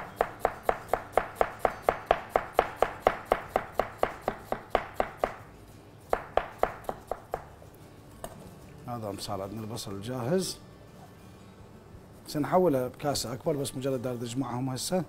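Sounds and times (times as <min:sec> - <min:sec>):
knife chopping onion on plastic: 0:00.1 - 0:05.4.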